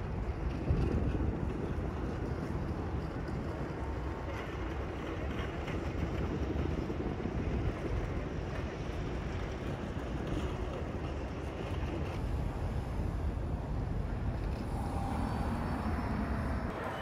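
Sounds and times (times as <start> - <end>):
distant traffic rumble: 9.6 - 17.0.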